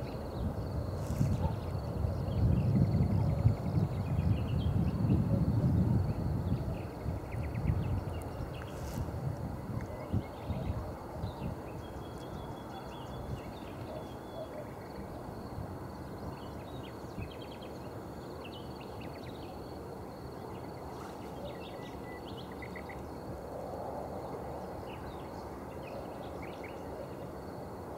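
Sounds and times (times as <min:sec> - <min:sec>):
wind rumble on microphone: 0:00.0 - 0:18.1
faint high insect trill: 0:00.0 - 0:27.9.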